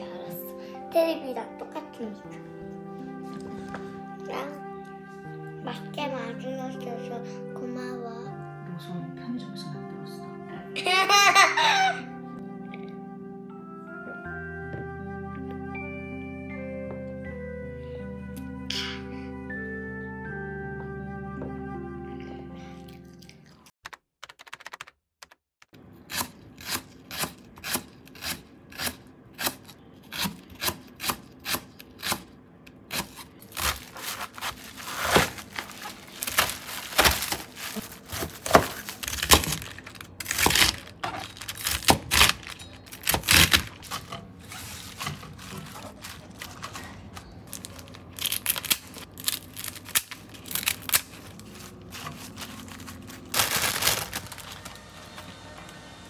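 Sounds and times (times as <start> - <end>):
crinkling and rustling: 33.5 - 55.3.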